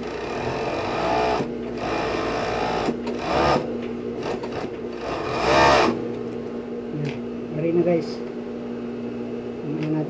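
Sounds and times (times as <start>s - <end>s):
overlock machine stitching: 0.0s - 6.0s
motor humming: 0.0s - 10.0s.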